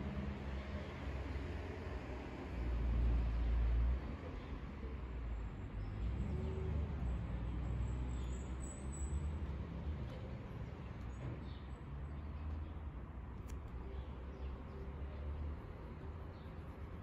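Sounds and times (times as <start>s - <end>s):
low street rumble: 0.0s - 17.0s.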